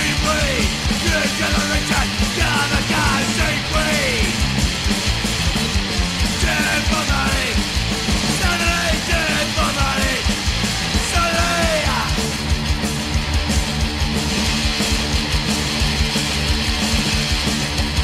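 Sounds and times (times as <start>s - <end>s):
shouted vocals: 0.0s - 4.4s, 6.3s - 7.6s, 8.3s - 10.3s, 11.0s - 12.2s
hardcore punk band playing: 0.0s - 18.0s.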